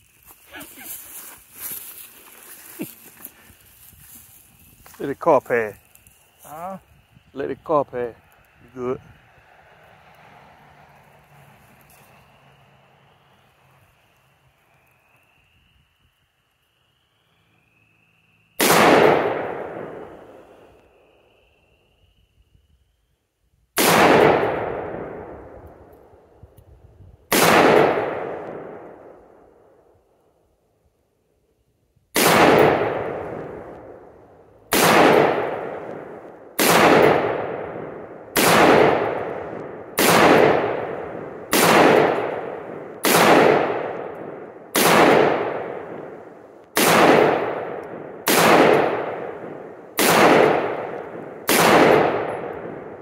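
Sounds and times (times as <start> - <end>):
rifle shots with long echo: 18.6 - 20.7, 23.8 - 26.4, 27.3 - 30.0, 32.1 - 53.0.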